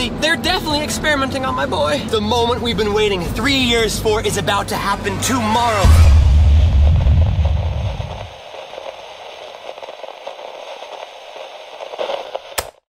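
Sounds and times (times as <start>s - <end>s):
crackling static noise: 0.0s - 12.9s
low bass music: 1.2s - 8.3s
sharp click: 12.6s - 12.8s.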